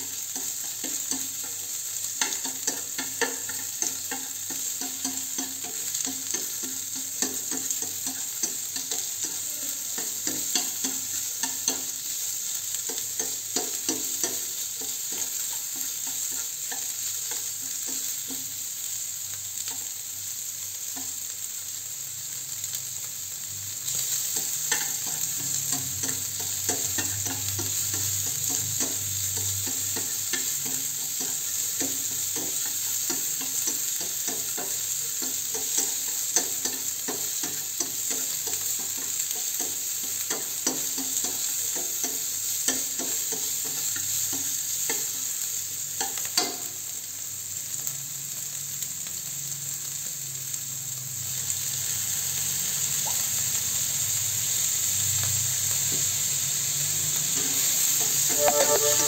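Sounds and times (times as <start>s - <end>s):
meat sizzling in a frying pan: 0.0s - 59.0s.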